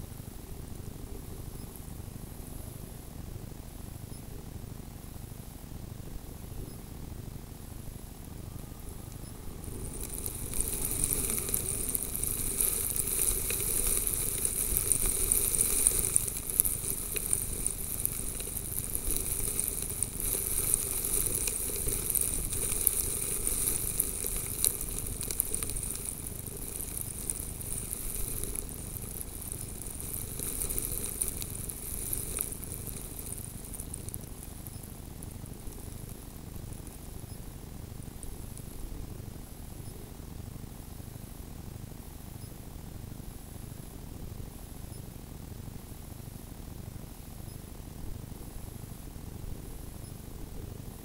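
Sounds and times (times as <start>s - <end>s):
snow blowing on microphone: 8.4s - 34.7s.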